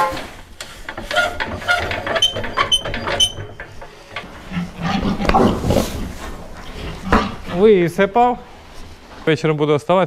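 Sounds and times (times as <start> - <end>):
pigs grunting: 4.0 - 8.1
pigs squealing: 4.4 - 5.7.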